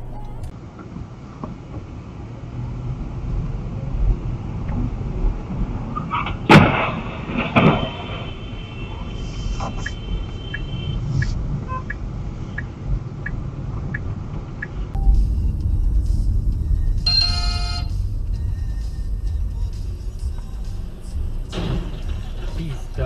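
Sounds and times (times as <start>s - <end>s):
car road and engine rumble: 0.0s - 23.0s
loud bang: 15.0s - 23.0s
music: 15.0s - 23.0s.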